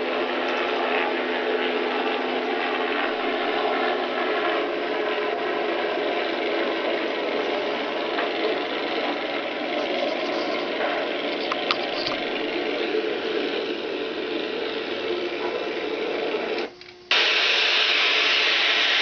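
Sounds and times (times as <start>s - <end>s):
outdoor noise: 0.0s - 19.0s
videotape static hiss: 5.0s - 19.0s.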